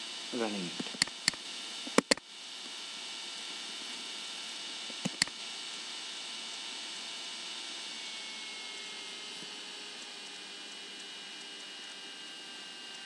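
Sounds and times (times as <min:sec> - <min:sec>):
microphone hiss and hum: 0:00.0 - 0:06.7
computer mouse clicks: 0:00.8 - 0:02.2, 0:04.9 - 0:05.4.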